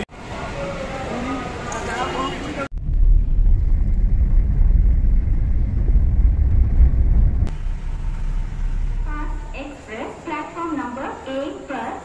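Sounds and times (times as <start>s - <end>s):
car interior road rumble: 2.7s - 9.9s.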